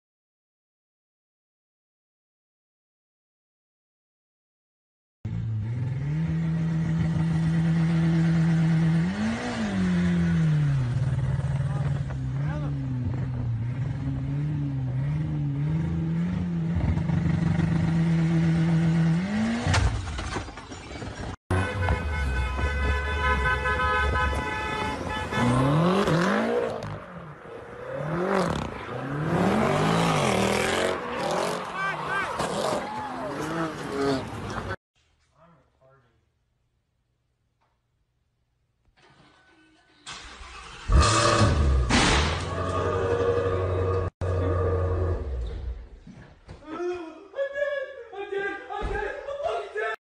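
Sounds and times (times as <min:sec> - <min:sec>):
car engine revving: 0:05.3 - 0:19.8, 0:25.2 - 0:31.7, 0:40.2 - 0:45.4
road noise: 0:05.3 - 0:34.8, 0:40.1 - 0:46.0
car horn blast: 0:21.5 - 0:26.2.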